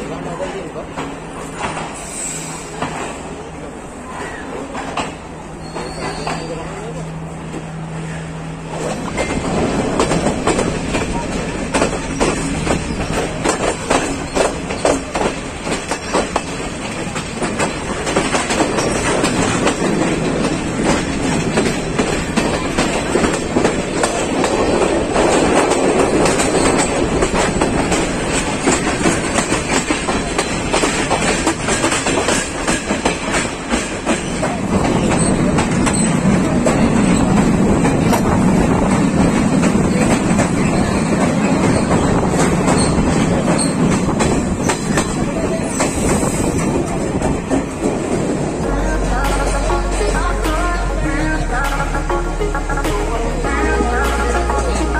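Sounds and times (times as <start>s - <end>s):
train rumble: 0.0s - 54.9s
train wheels clattering over rail joints: 8.7s - 48.6s.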